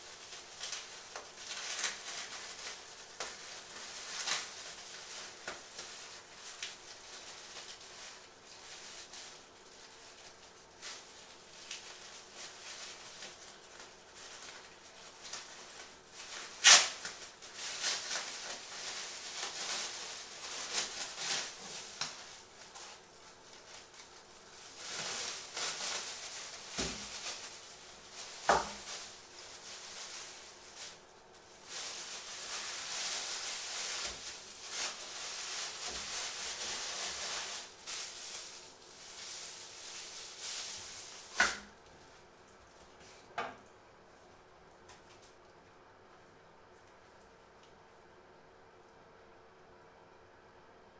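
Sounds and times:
plastic bags rustling: 0.0 - 43.4
sharp snap: 16.6 - 17.0.

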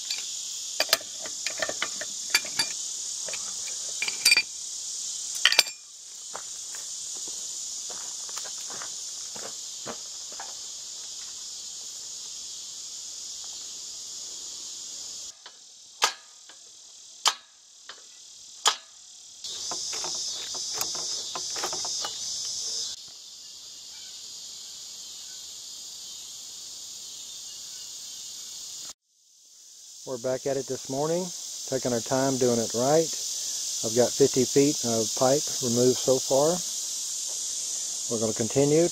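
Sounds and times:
pipe wrench clinking on metal pipe: 0.0 - 4.5, 5.4 - 5.8
insect chorus: 0.0 - 38.9.

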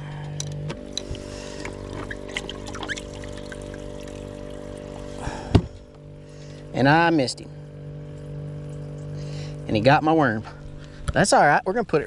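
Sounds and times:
air pump humming: 0.0 - 11.4
water splashing and trickling: 0.8 - 5.5.

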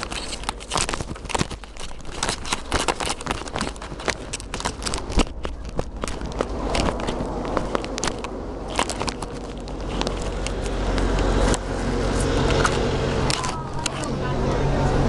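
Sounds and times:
tram hum and rumble: 0.0 - 15.0.

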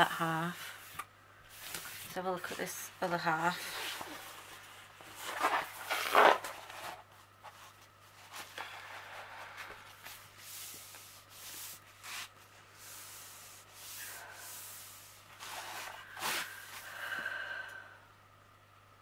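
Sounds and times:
paper swishing and rustling: 9.5 - 16.8.

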